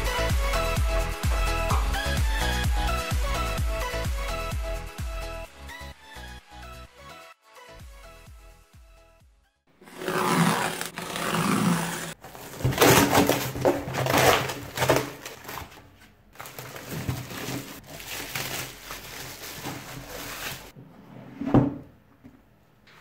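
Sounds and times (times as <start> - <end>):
cardboard box tearing: 9.8 - 15.8
plastic wrap crinkling and ripping: 10.0 - 20.7.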